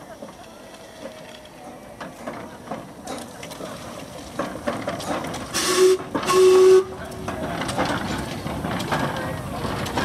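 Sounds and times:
locomotive engine clanking: 0.0s - 10.0s
steam hissing: 3.6s - 7.3s
steam whistle blasts: 5.6s - 7.0s.

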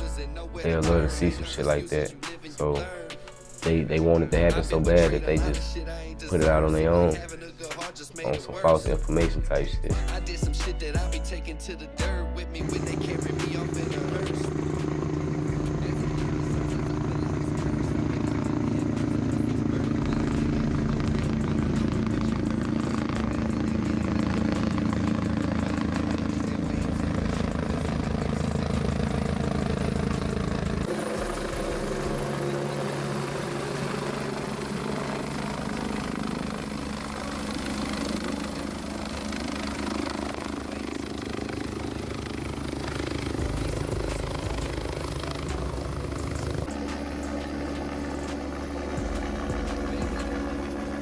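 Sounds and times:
helicopter rotor and engine: 0.0s - 11.8s, 12.6s - 51.0s.

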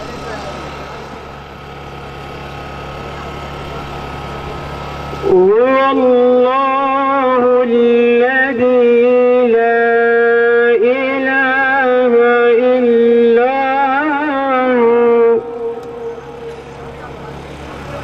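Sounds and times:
man singing into a microphone: 5.2s - 16.1s.

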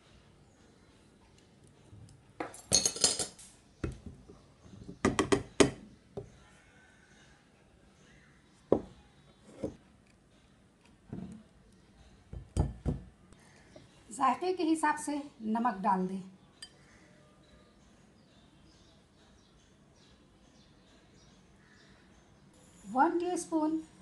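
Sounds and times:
spoon and sieve clinking on bowls: 2.4s - 3.4s.

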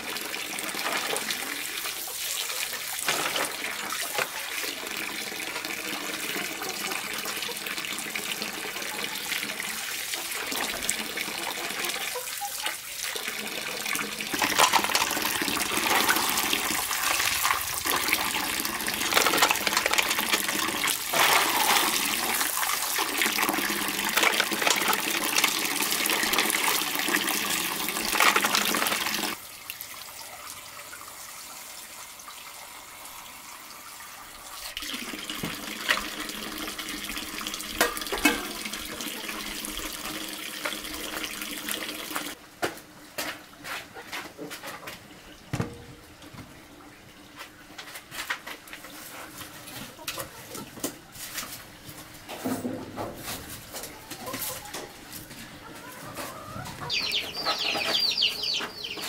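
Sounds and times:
water pouring into metal basin: 12.9s - 32.4s, 34.6s - 42.4s.

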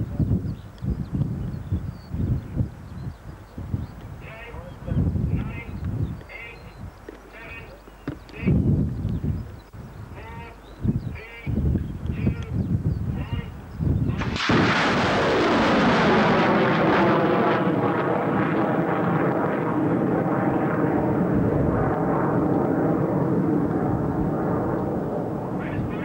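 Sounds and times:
rocket motor blast: 14.2s - 25.4s.

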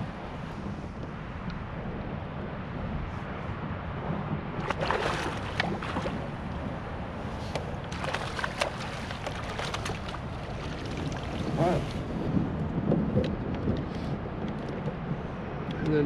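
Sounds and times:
wind buffeting microphone: 0.0s - 16.0s
water sloshing and splashing: 4.6s - 12.2s
fishing gear knocks and rattles: 7.5s - 10.5s.

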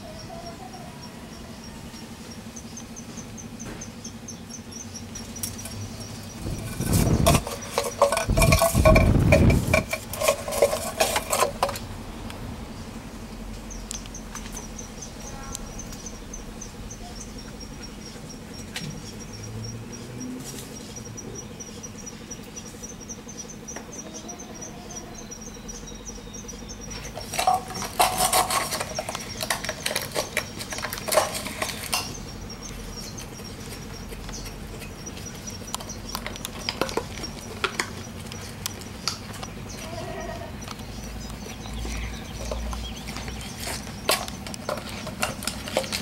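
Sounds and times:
dog chewing plastic bottle: 27.2s - 32.0s.

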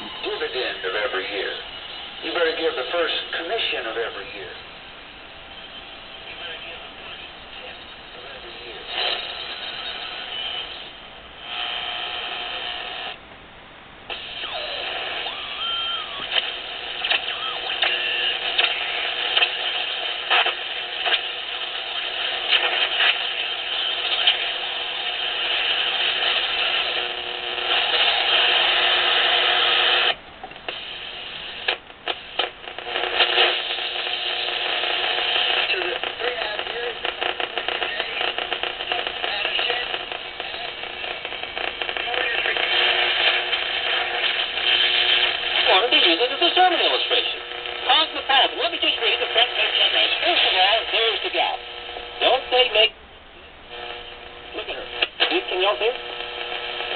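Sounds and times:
radio static and hiss: 0.0s - 13.3s, 14.0s - 56.9s
radio crackles: 0.0s - 56.9s
radio whistles gliding in pitch: 14.3s - 16.4s.

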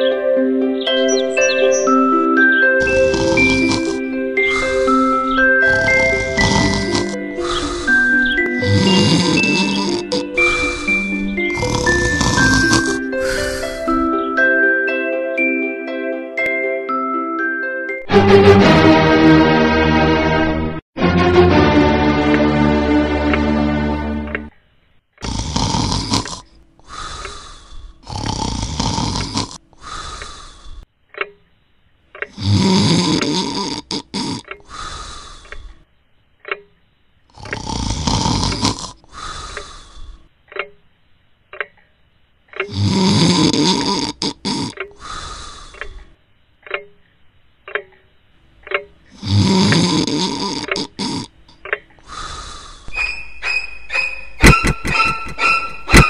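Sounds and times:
person snoring: 2.8s - 14.1s, 25.2s - 30.8s, 32.3s - 35.8s, 37.4s - 40.2s, 42.6s - 46.1s, 49.1s - 51.4s, 52.0s - 53.0s
alarm clock ticking: 47.6s - 50.9s, 53.0s - 56.0s.

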